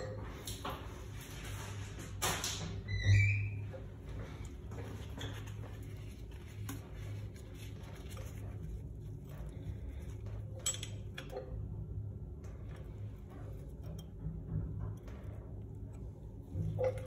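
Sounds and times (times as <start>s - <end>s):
steady low hum: 0.0s - 17.0s
rustles of gloved hands: 4.2s - 10.6s.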